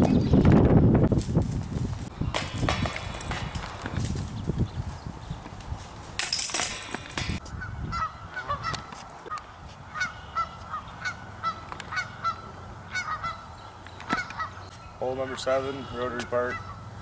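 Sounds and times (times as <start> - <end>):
geese honking: 8.0 - 14.7, 15.8 - 16.9.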